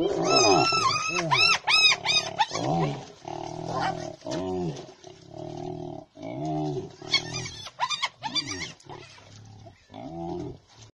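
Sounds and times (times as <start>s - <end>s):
hyenas groaning: 0.0s - 4.8s
hyenas squealing: 0.2s - 2.7s, 7.1s - 9.3s.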